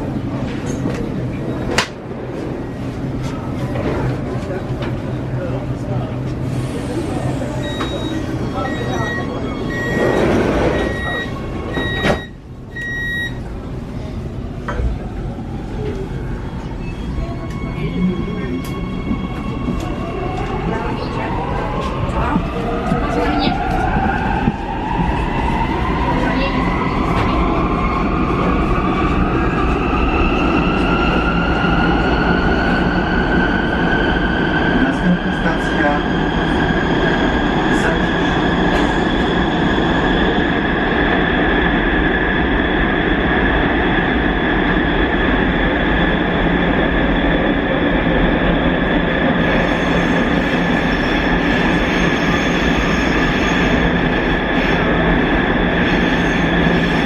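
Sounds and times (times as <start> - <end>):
train rumble: 0.0 - 57.0
high electronic warning beep: 7.6 - 13.4
train doors shutting knock: 9.9 - 12.4.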